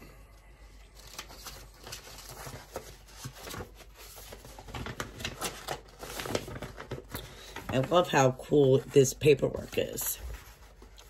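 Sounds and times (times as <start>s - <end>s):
paper rustling and crinkling: 0.8s - 11.0s.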